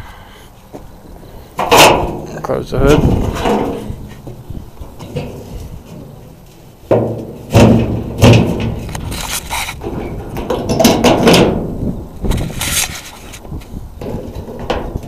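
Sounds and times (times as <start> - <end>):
metal knocking and clattering: 1.6 - 2.4, 3.1 - 6.2, 6.9 - 11.7, 14.0 - 15.0
metal hood clanking and thudding: 1.6 - 9.2, 9.8 - 12.6, 14.0 - 15.0.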